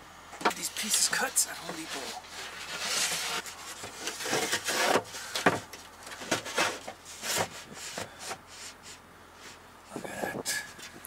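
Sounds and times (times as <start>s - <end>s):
plywood scraping over wood: 0.6s - 9.6s.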